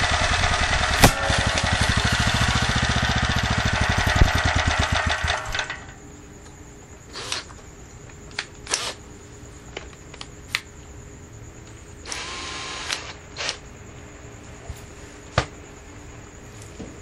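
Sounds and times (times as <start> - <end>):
high whine: 0.0 - 6.8
faint steady hum: 0.0 - 17.0.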